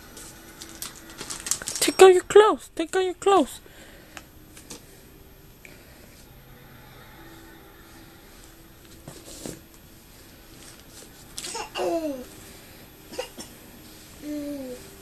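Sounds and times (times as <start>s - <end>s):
toddler whining: 11.5s - 12.3s, 14.2s - 14.9s.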